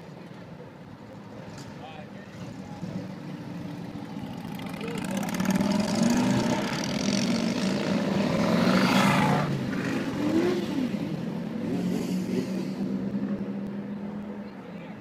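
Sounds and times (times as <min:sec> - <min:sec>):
motorcycle engines idling: 0:00.0 - 0:08.2
motorcycle engine revving: 0:01.6 - 0:13.6.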